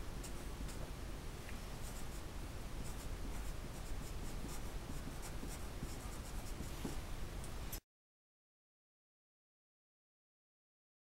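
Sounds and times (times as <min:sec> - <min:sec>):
faint low room hum: 0:00.0 - 0:07.8
pencil scratching on paper: 0:01.8 - 0:02.2, 0:02.8 - 0:07.0.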